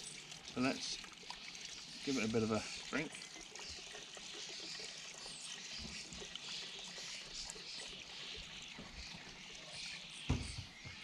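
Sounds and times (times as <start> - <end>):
petrol trickling through funnel: 0.0 - 10.2
thump: 10.3 - 10.7.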